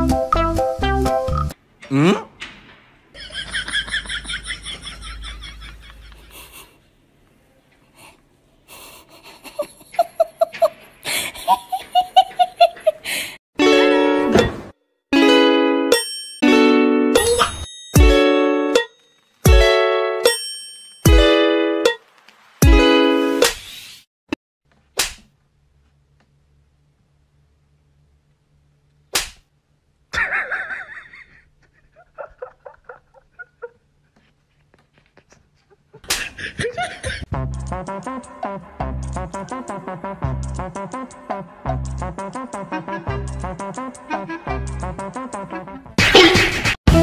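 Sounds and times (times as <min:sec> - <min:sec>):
short voiced pulses: 0:01.8 - 0:02.3
person giggling: 0:03.2 - 0:06.8, 0:08.0 - 0:13.3, 0:30.1 - 0:34.3, 0:35.0 - 0:37.3
music with held notes: 0:18.0 - 0:20.3
sharp smack: 0:25.0 - 0:25.3, 0:29.1 - 0:29.5.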